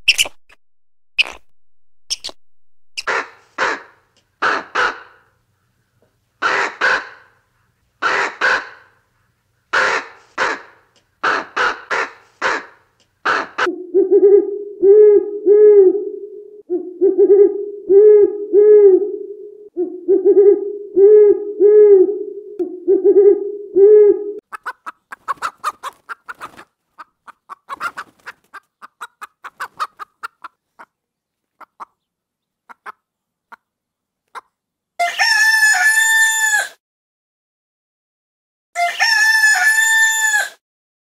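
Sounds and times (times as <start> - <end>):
owl hooting: 13.3 - 24.4.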